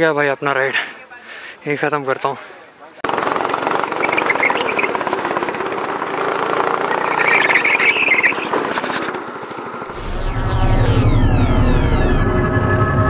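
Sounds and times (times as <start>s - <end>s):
go-kart engine running hard: 3.1s - 10.0s.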